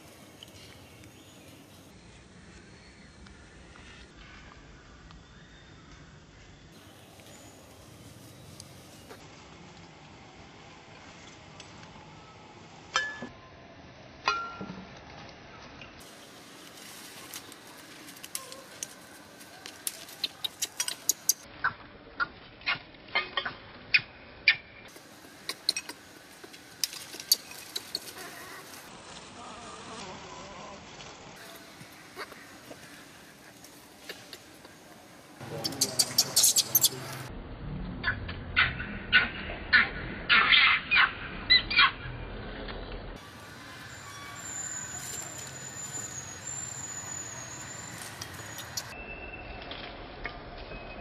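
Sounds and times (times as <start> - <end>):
baby monkey squeaking: 35.5 - 37.2
baby monkey crying: 35.6 - 37.0
high-pitched whine: 41.1 - 51.0.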